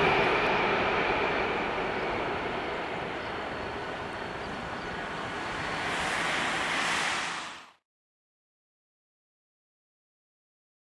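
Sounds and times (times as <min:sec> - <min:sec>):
jet engines roaring: 0:00.0 - 0:07.8.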